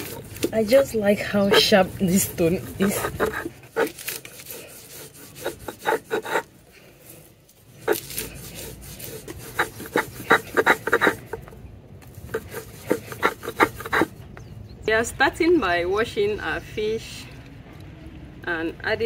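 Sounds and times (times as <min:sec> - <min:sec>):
grinding stone rasping over seeds: 0:00.0 - 0:14.2.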